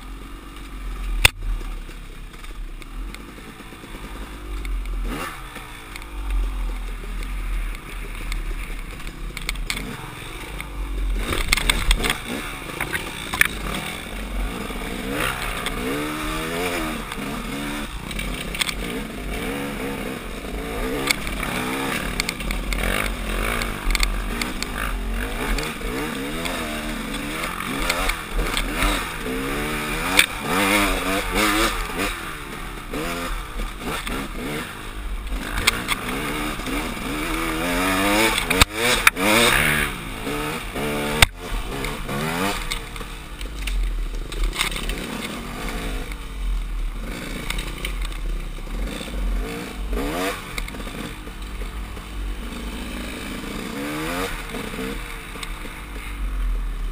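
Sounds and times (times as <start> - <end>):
dirt bike engine revving: 0.0 - 56.9.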